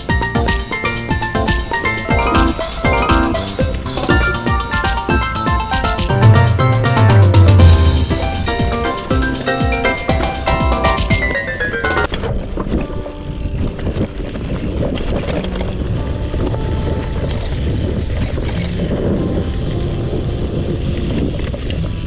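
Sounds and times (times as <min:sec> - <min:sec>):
wind buffeting microphone: 0:12.2 - 0:22.0.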